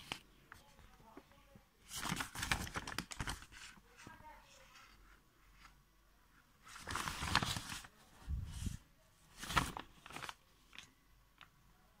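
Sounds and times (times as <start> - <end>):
paper bag crinkling: 1.9 - 3.8, 6.7 - 7.9, 9.3 - 10.9.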